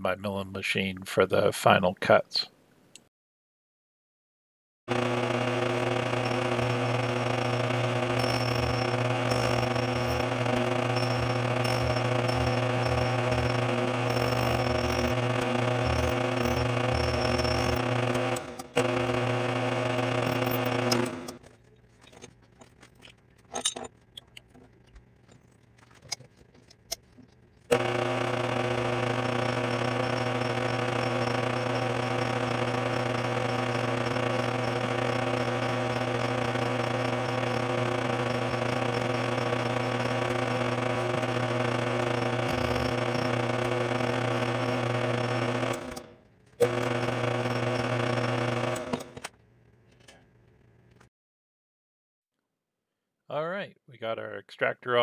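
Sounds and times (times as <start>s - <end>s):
milling machine motor hum: 4.9s - 49.3s.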